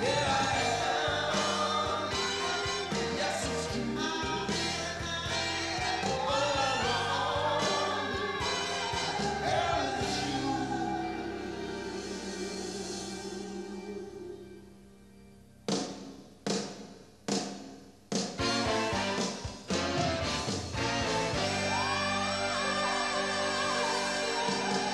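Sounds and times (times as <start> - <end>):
music with singing voices: 0.0 - 17.6, 18.2 - 24.9.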